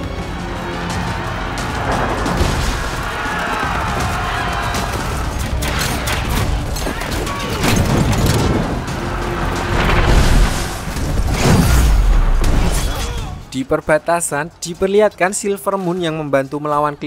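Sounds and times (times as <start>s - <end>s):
film score music: 0.0s - 17.0s
noise of large fight: 0.1s - 13.5s.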